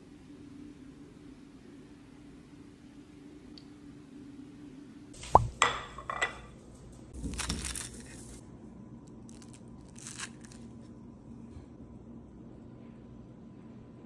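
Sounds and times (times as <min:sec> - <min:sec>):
knife clinking on plate: 0:05.6 - 0:06.5.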